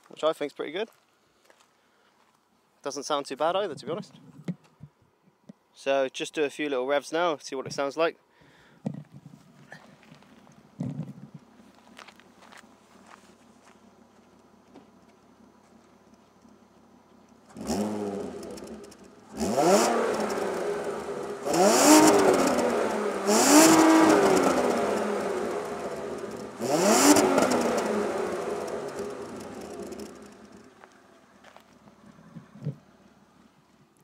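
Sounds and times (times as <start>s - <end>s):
car engine idling and revving: 9.0s - 33.9s.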